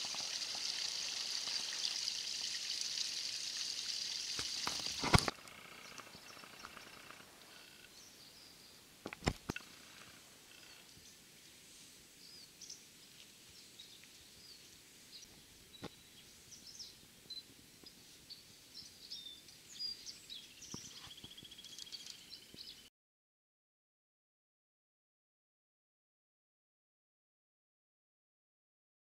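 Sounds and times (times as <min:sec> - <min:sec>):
rapid buzzing bird trill: 0:00.0 - 0:08.0
birds chirping and whistling: 0:18.8 - 0:22.9.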